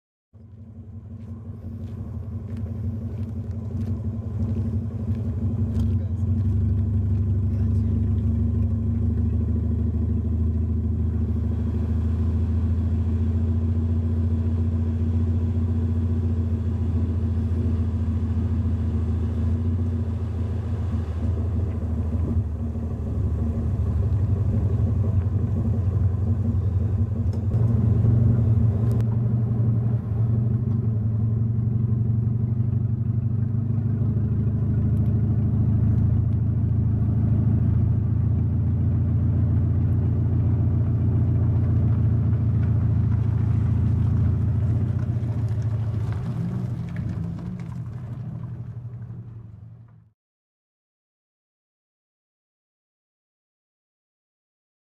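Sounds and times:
car engine idling: 0.4 - 50.1.

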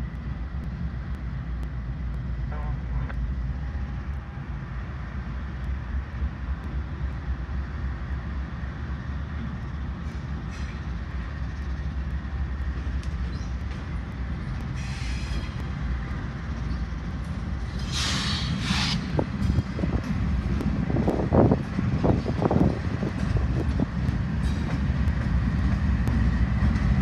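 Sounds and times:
diesel locomotives rumbling past: 0.0 - 27.0
wheel squeal: 17.8 - 19.2.

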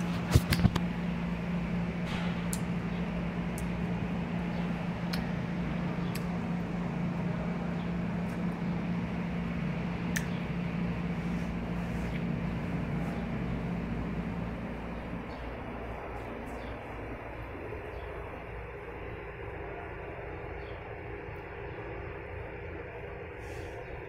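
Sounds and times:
low mechanical hum: 0.0 - 24.0
sharp clicks: 2.1 - 3.9, 4.5 - 5.4, 10.1 - 10.4.

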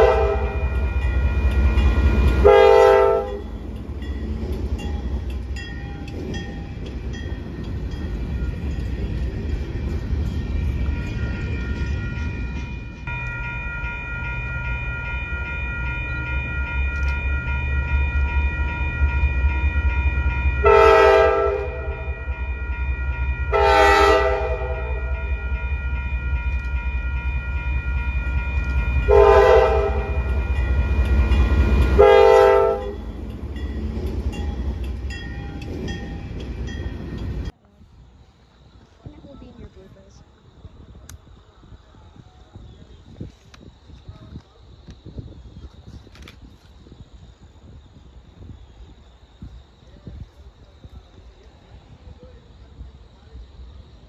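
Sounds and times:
locomotive horn blasts: 0.0 - 0.9, 2.4 - 3.4, 20.6 - 22.3, 23.4 - 25.2, 29.1 - 30.6, 31.8 - 33.0
moving train rumbling: 0.0 - 54.0.

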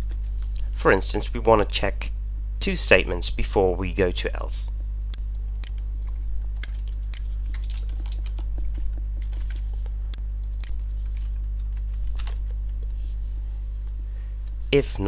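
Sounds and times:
low mains hum: 0.0 - 15.0
computer keyboard clicks: 5.2 - 9.7, 10.4 - 10.8.

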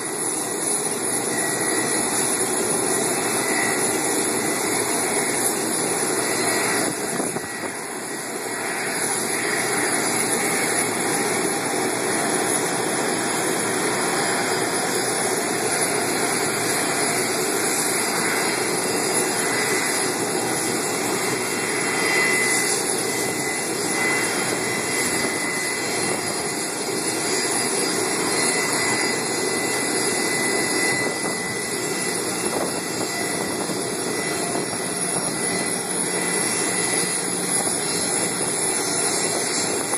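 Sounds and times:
jet engines whining: 0.0 - 39.9.

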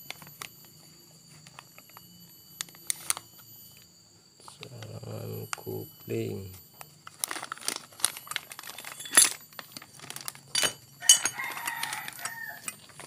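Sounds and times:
plastic bag crinkling: 6.8 - 13.0.

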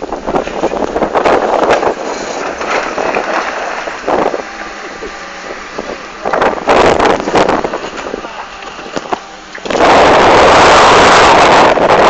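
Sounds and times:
car engine pulling: 0.0 - 12.0
wind rumble on microphone: 0.0 - 12.0.

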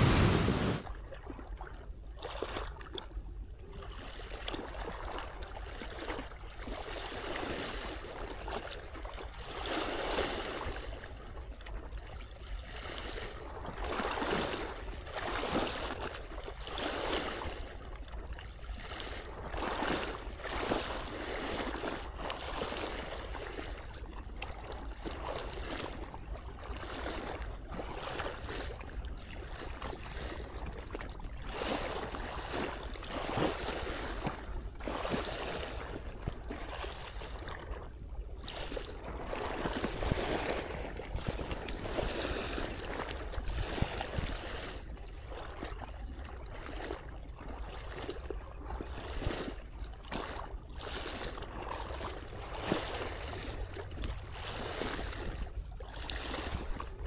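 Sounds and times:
seawater washing and surging: 0.0 - 0.8, 31.6 - 37.8, 38.6 - 46.8, 48.6 - 57.0
steady low rumble: 0.0 - 0.8.

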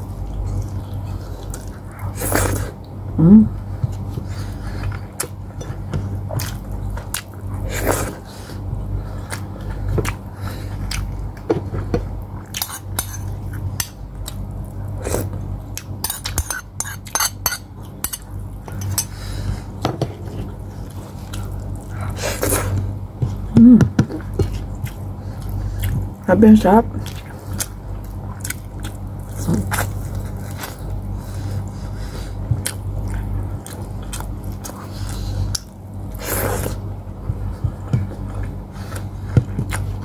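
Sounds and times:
steady low hum: 0.0 - 40.0
chewing and mouth smacks: 27.0 - 30.8, 32.6 - 35.8, 37.3 - 40.0.

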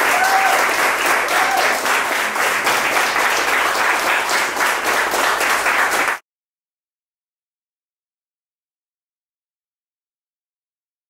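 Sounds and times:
audience applauding: 0.0 - 6.2.

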